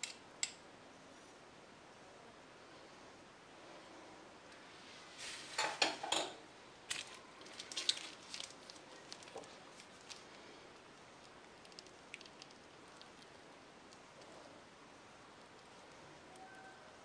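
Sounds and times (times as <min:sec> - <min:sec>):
scraping and rustling on counter: 0:04.7 - 0:06.4
piping bag crinkling clicks: 0:06.9 - 0:14.3.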